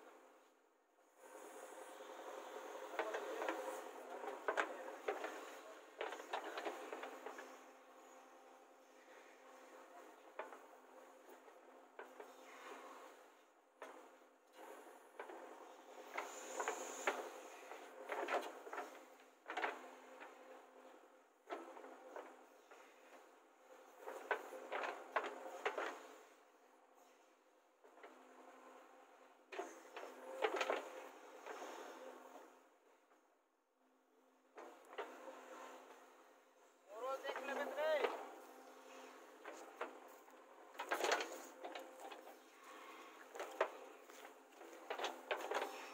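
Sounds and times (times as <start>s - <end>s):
faint steady machine noise: 0.0s - 45.9s
backhoe clunks and scraping knocks: 1.3s - 33.3s, 34.2s - 45.9s.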